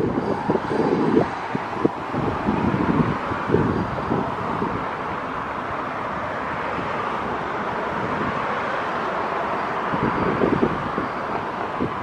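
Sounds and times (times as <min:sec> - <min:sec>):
road traffic hiss: 0:00.0 - 0:12.0
wind gusting on microphone: 0:00.0 - 0:12.0.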